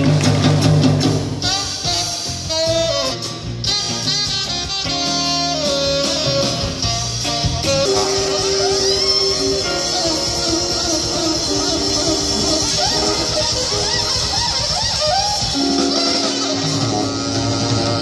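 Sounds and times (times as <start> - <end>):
drum kit: 0.0 - 18.0
electric bass: 0.0 - 18.0
electric guitar: 0.0 - 18.0
tenor saxophone melody: 1.4 - 18.0.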